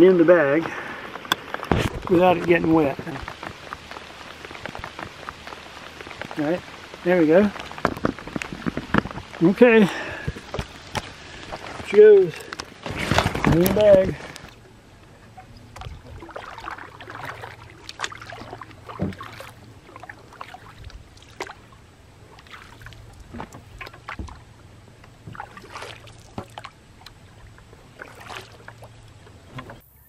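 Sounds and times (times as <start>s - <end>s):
paddle splashing in water: 0.4s - 14.7s, 15.3s - 29.8s
paddle knocking against hull: 7.5s - 9.6s, 15.4s - 21.6s, 22.4s - 24.5s, 25.1s - 26.7s.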